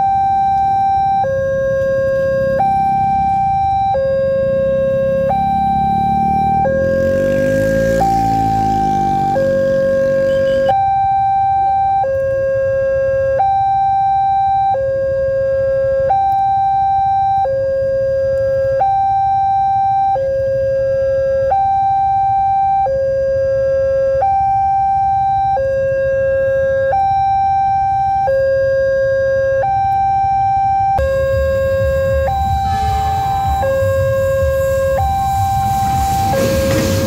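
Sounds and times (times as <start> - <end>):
two-tone crossing alarm: 0.0 - 37.0
steady low rumble: 31.0 - 37.0.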